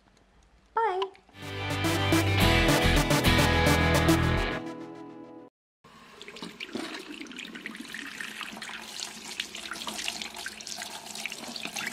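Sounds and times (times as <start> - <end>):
music: 1.4 - 5.5
water splashing over paintbrushes: 6.3 - 11.9.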